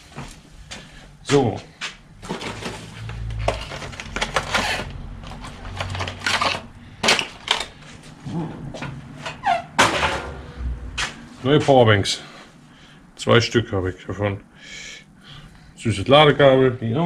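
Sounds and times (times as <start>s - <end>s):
packaging rustling and clicking: 2.2s - 8.1s.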